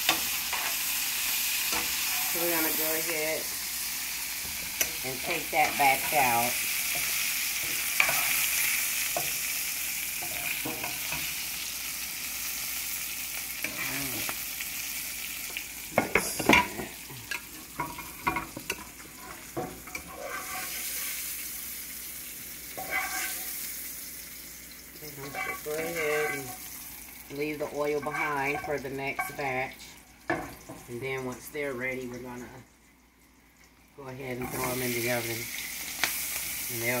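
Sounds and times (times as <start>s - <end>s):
hot oil sizzling: 0.0s - 32.5s, 33.4s - 37.0s
metal utensils clinking on pan: 4.8s - 8.5s, 10.2s - 11.4s, 16.0s - 21.0s, 22.8s - 23.5s, 25.1s - 26.7s, 27.5s - 29.6s, 34.4s - 35.2s.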